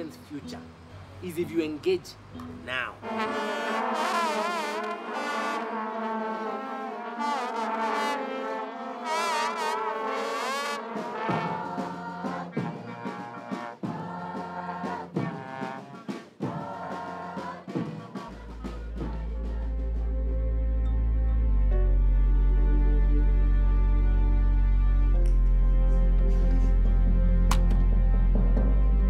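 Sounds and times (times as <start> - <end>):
pulsing beat: 11.3 - 20.0
deep bass swell: 18.5 - 29.0.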